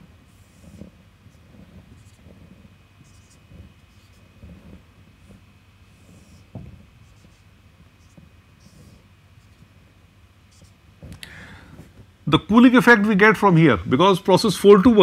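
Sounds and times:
marker squeaking on whiteboard: 0.3 - 9.8, 10.4 - 10.9
soft thump: 6.5 - 6.9.

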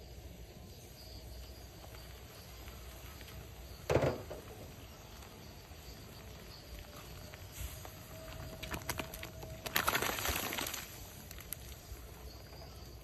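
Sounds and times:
insects calling: 0.0 - 13.0.

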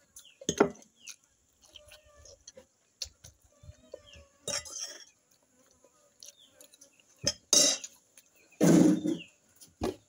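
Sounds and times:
cutlery and dishes clinking: 4.4 - 5.2, 7.2 - 8.0
clattering scrape: 8.6 - 9.3.

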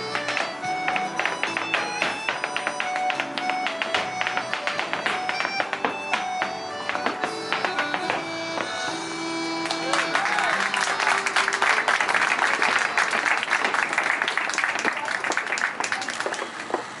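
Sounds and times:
dance music: 0.0 - 12.5
audience applause: 9.6 - 16.9.

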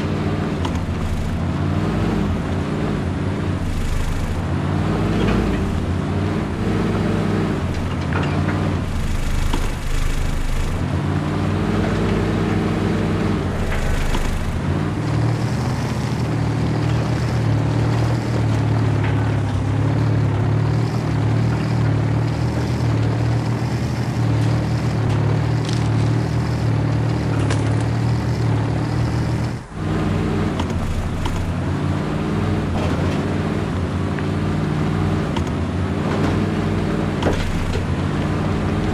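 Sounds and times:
rc trucks low engine-like drone: 0.0 - 38.9.

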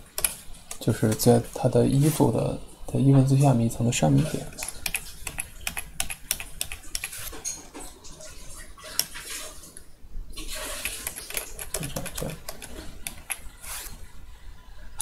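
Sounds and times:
keyboard clicking: 0.2 - 1.3, 4.5 - 7.3, 10.8 - 13.5
mouse clicking: 4.6 - 7.3, 10.8 - 13.5.

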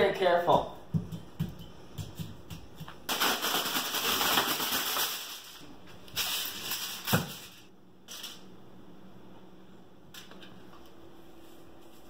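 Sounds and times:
aluminum foil crinkling: 3.1 - 8.4.

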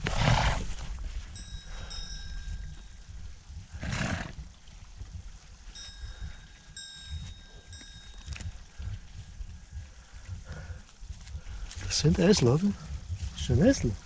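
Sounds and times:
donkeys snorting: 0.0 - 0.9, 3.8 - 4.4.

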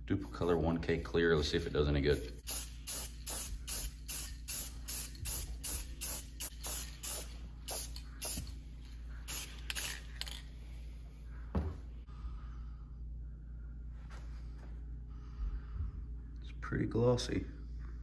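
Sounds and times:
steady low hum: 0.0 - 18.0
aerosol can spraying: 2.4 - 8.6, 9.3 - 10.1
thump: 11.5 - 11.8.

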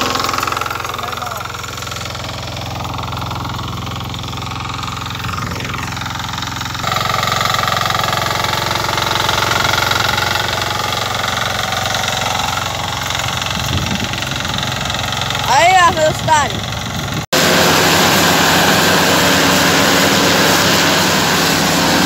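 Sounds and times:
walking tractor engine running: 0.0 - 22.0.

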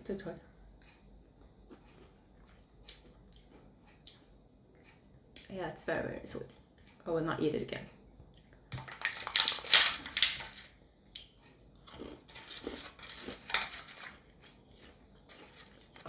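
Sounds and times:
plastic tray crackling: 12.3 - 14.3.

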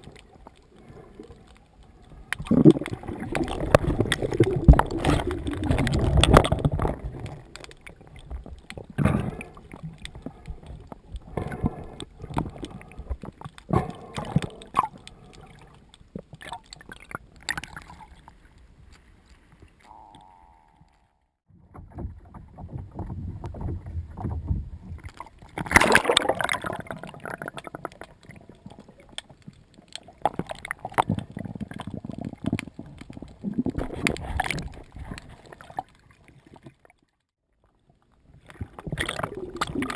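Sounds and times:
water splashing and gurgling: 0.0 - 39.9.

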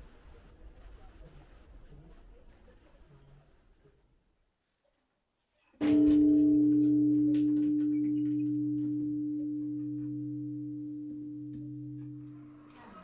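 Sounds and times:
bell ringing: 5.8 - 13.0.

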